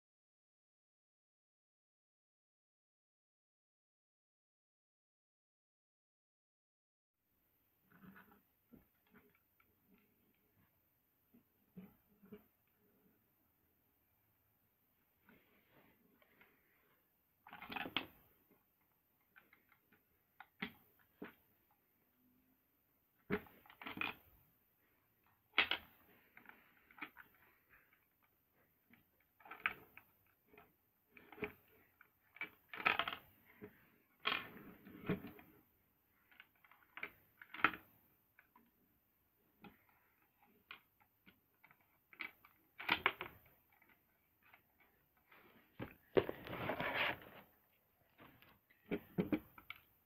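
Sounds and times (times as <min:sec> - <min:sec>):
plastic bricks clicking and rattling: 0:17.4 - 0:18.2, 0:28.9 - 0:35.4, 0:39.6 - 0:45.2.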